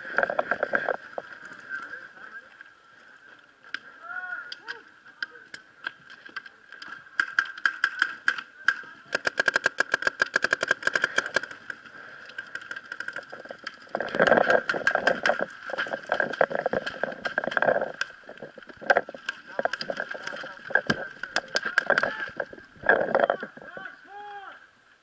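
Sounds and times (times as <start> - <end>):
paintball marker firing: 7.2 - 11.6.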